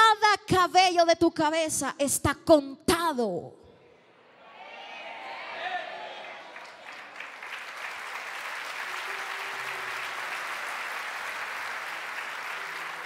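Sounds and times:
congregation applauding: 5.6 - 13.0.

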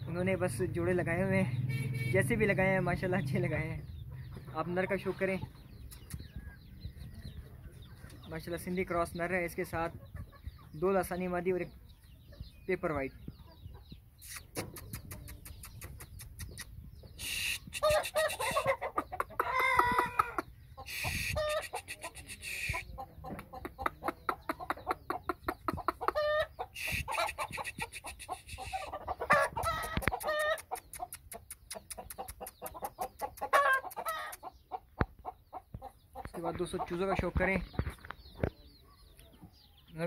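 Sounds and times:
chickens clucking: 0.0 - 40.0
drawn-out chicken calls: 9.7 - 11.0, 13.2 - 40.0.

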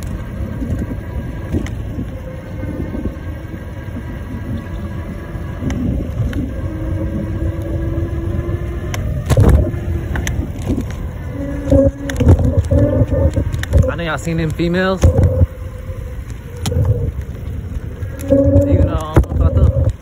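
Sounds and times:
faint steady whine: 0.0 - 20.0
wind and road noise: 0.0 - 20.0.

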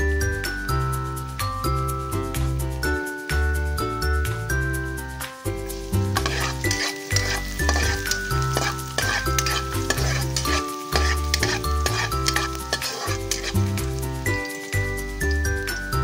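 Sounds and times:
garlic sizzling in hot oil: 4.6 - 16.0
metal spatula scraping a wok: 5.7 - 15.9.

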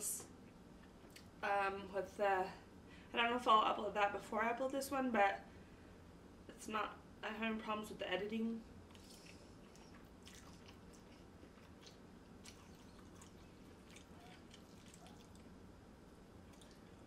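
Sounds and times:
chewing noodles: 8.9 - 15.6, 16.4 - 17.0.

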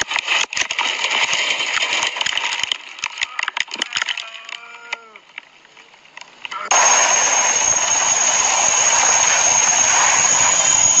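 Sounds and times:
sharp cracks and rattles: 0.0 - 4.7
aircraft crash rushing noise: 6.7 - 11.0.

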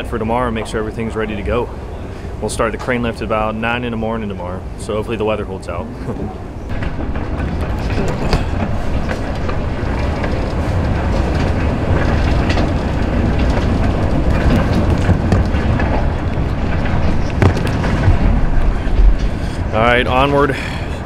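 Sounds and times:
baggage carousel rumble: 0.0 - 21.0
luggage clicks and knocks: 6.7 - 20.3.

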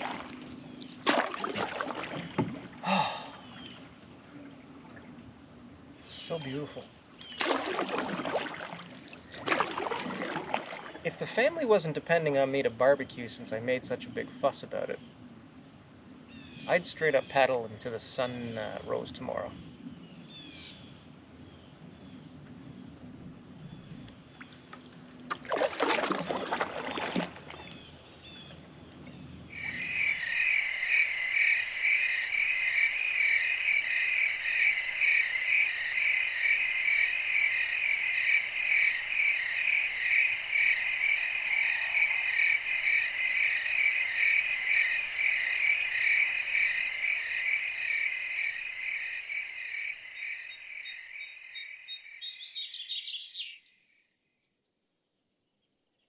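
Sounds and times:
night chorus of calling animals: 2.8 - 4.0, 29.5 - 53.4.

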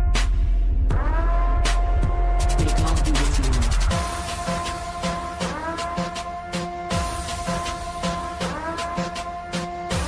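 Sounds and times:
electronic dance music: 2.4 - 10.0.

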